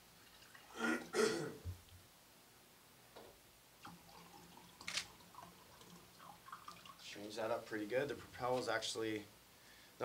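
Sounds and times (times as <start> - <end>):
water pouring into a glass: 0.2 - 0.8, 3.8 - 7.1.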